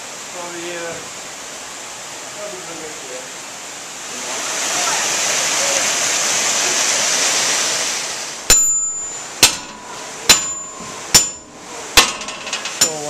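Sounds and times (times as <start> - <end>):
rushing stream water: 0.0 - 13.0
hammer ringing on iron: 8.5 - 13.0.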